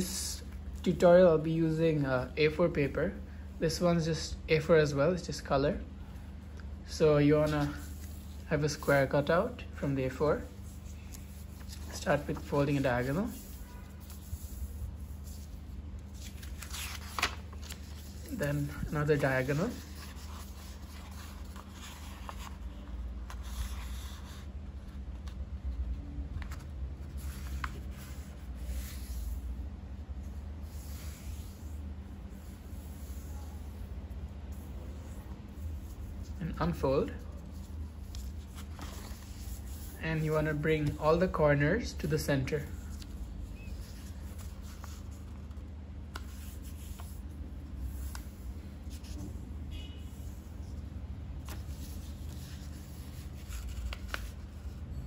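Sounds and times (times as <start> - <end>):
steady low hum: 0.0 - 55.0
paper rubbing and rustling: 10.1 - 29.6, 30.2 - 41.2, 42.7 - 49.4, 50.2 - 54.8.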